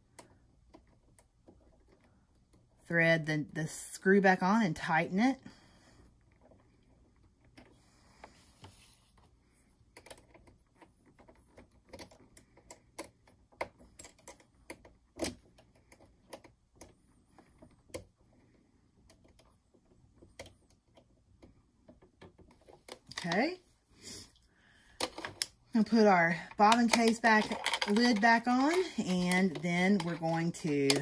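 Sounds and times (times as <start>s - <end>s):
small metal parts clicking: 26.5s - 31.0s.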